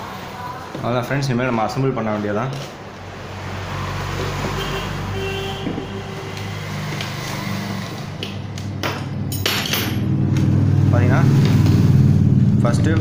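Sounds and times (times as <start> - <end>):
road traffic noise: 0.0 - 13.0
vehicle engine humming: 2.7 - 13.0.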